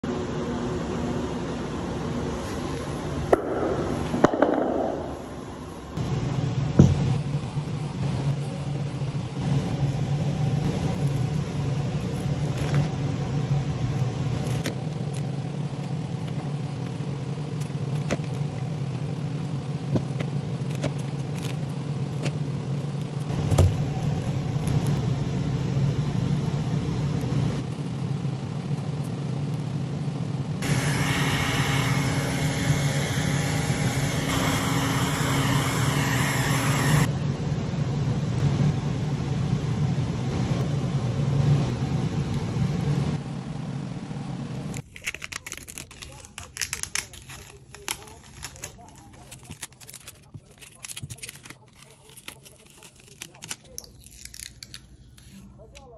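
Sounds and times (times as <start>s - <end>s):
steady low hum: 0.0s - 55.9s
heat gun blowing: 30.6s - 37.1s
plastic wrap rustling: 44.8s - 55.9s.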